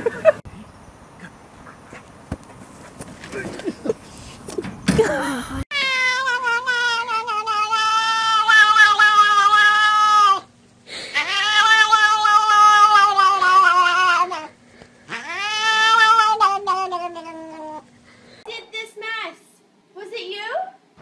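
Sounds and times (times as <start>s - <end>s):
cat yowling: 5.7s - 10.5s, 11.1s - 14.5s, 15.1s - 17.8s.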